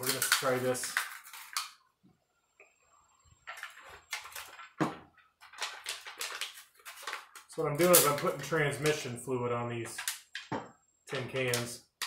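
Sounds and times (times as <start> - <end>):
metal strips crinkling: 0.0 - 1.8, 3.4 - 9.0.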